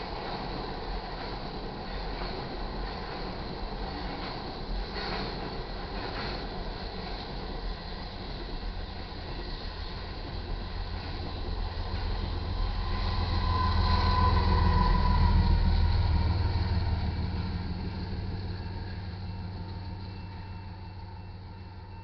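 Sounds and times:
rumble of train cars: 0.0s - 22.0s
locomotive diesel engine drone: 8.6s - 22.0s.

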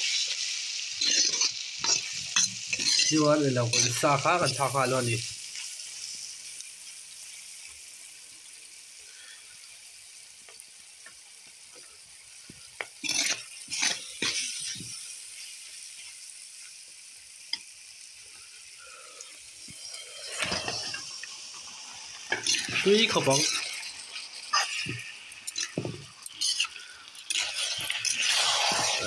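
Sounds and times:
onions sizzling in oil: 0.0s - 29.0s
ladle scraping pot: 1.0s - 4.0s, 24.5s - 29.0s.

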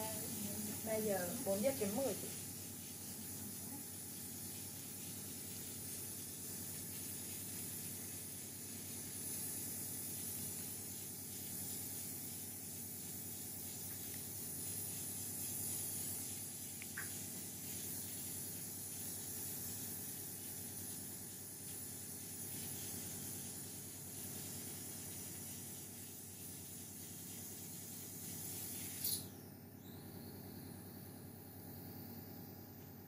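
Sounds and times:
background hiss: 0.0s - 33.0s
faint chirp: 28.9s - 32.5s.

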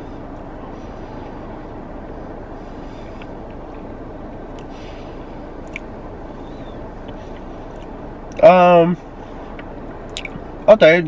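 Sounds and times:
car engine idling: 0.0s - 11.0s
chewing clicks: 5.6s - 5.9s, 7.7s - 7.9s, 9.6s - 10.4s.

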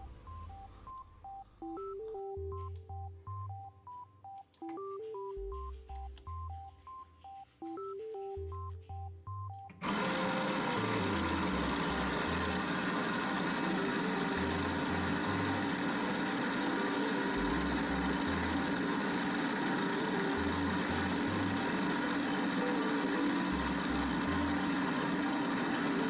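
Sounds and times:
shaker motor mechanical hum: 9.8s - 26.0s.

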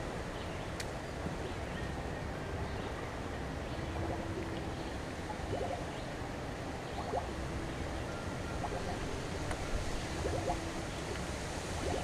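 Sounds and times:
waves lapping against boat: 8.6s - 12.0s.

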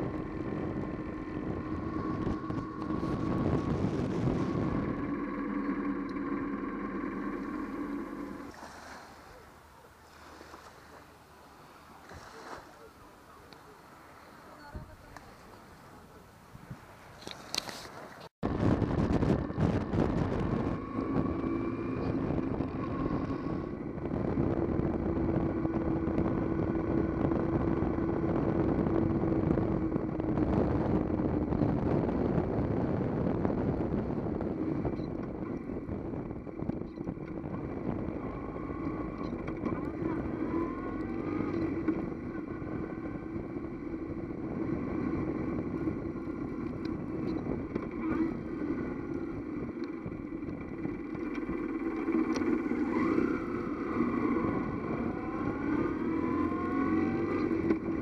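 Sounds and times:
motorcycle engine running: 0.0s - 8.6s, 18.4s - 58.0s
wind rush: 0.0s - 9.0s, 18.4s - 39.4s
road noise: 0.0s - 58.0s.

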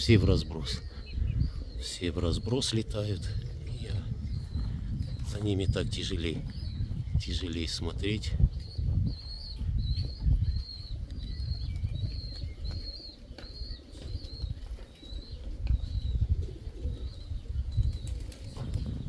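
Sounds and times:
pigeon wings flapping: 17.9s - 19.0s.

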